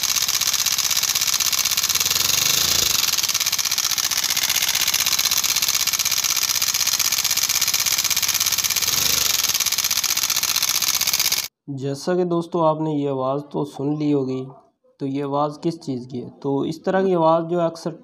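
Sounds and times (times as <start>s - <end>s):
motorcycle engine ticking clatter: 0.0s - 11.5s.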